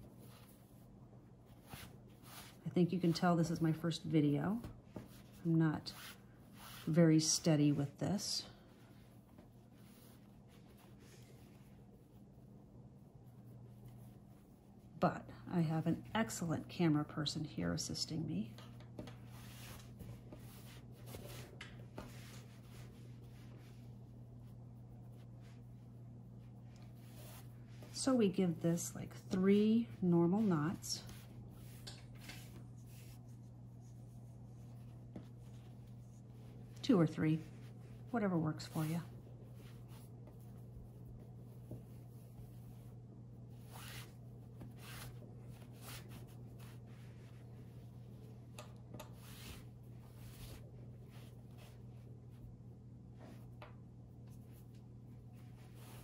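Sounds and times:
steady low hum: 0:00.0 - 0:56.0
fabric strips rustling: 0:17.8 - 0:53.6.

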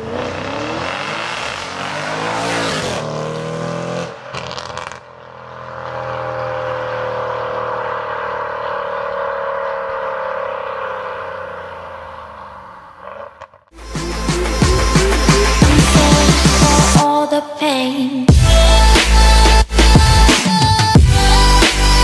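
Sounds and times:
car engine revving: 0:00.0 - 0:17.0.

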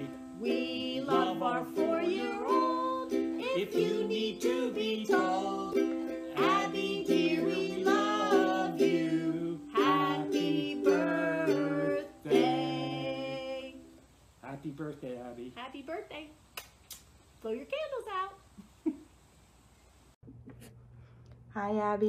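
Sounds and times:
man and woman singing: 0:00.0 - 0:14.0.

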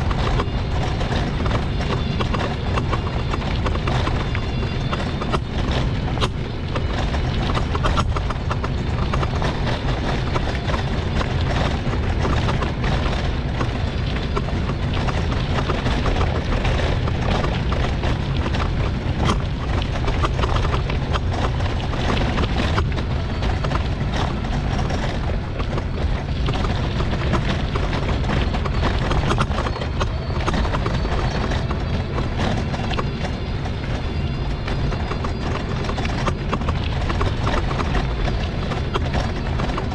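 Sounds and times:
mobility scooter rattling and knocking: 0:00.0 - 0:39.9
steady low rumble: 0:00.0 - 0:39.9.

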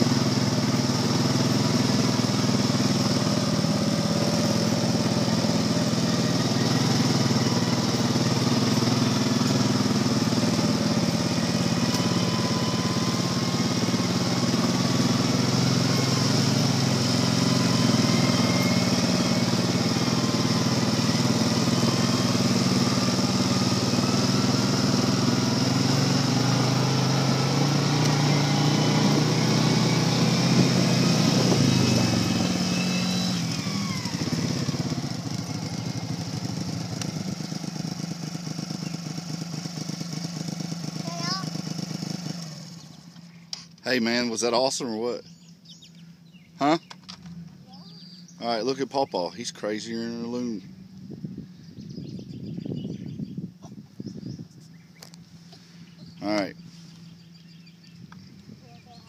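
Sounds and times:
higher wavering engine note: 0:00.0 - 0:38.9
low engine hum: 0:00.0 - 0:59.0.

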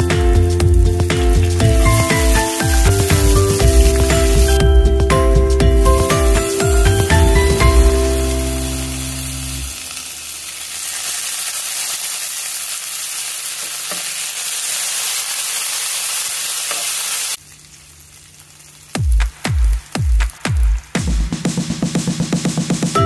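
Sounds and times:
drum beat: 0:00.0 - 0:09.4, 0:19.0 - 0:23.0
music: 0:00.0 - 0:09.8, 0:19.0 - 0:23.0
food sizzling in hot oil: 0:00.0 - 0:20.4.

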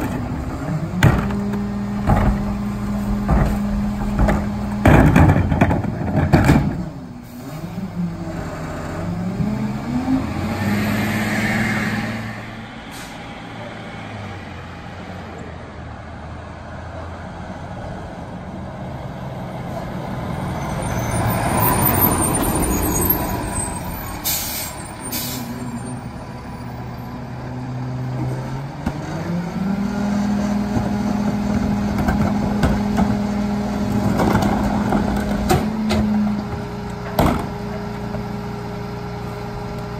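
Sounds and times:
diesel engine revving: 0:00.0 - 0:15.3, 0:17.2 - 0:39.9
air brakes hissing: 0:12.8 - 0:13.3, 0:24.0 - 0:25.9.

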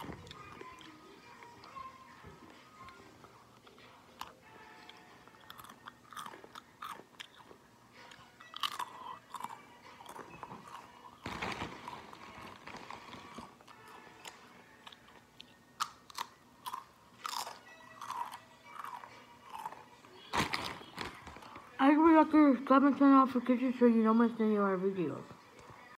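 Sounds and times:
crunchy chip chewing: 0:03.6 - 0:21.6.

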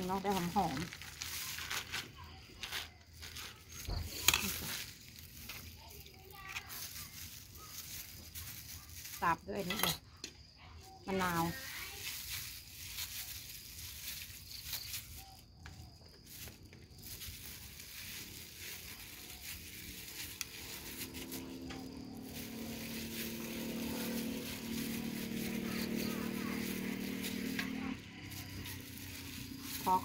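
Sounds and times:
plastic glove rustling: 0:00.0 - 0:10.0, 0:10.9 - 0:30.0
engine hum: 0:17.4 - 0:30.0.

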